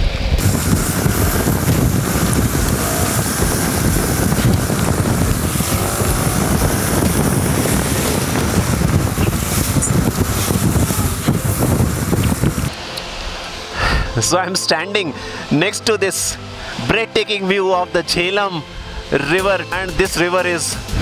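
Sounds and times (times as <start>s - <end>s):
motorcycle engine running: 0.0s - 12.8s
wind noise on microphone: 0.0s - 14.2s, 20.8s - 21.0s
tyres hissing on wet road: 0.4s - 14.2s.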